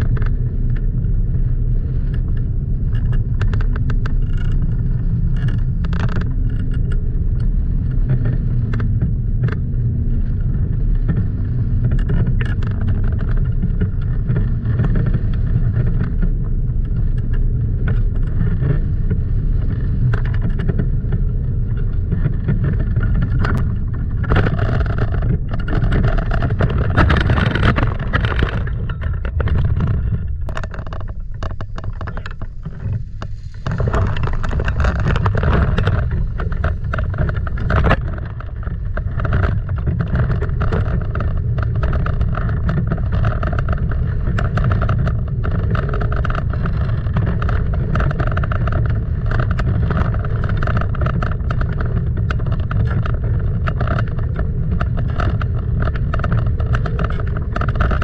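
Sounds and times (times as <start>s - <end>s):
steady droning hum: 0.0s - 58.0s
wind buffeting microphone: 0.0s - 58.0s.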